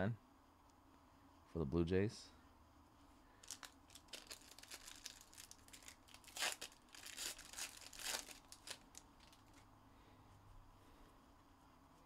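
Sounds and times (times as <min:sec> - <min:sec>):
foil wrapper tearing and crinkling: 0:03.4 - 0:09.6.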